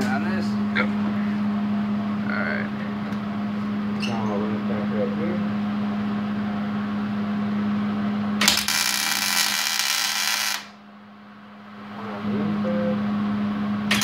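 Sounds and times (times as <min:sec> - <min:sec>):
steady low hum: 0:00.0 - 0:14.0
welding arc crackling: 0:08.4 - 0:10.8.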